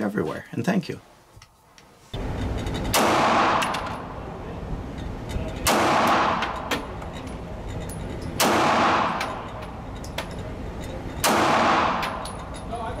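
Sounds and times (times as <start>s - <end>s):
gunshot with echo: 2.9s - 4.0s, 5.6s - 6.6s, 8.4s - 9.4s, 11.2s - 12.2s.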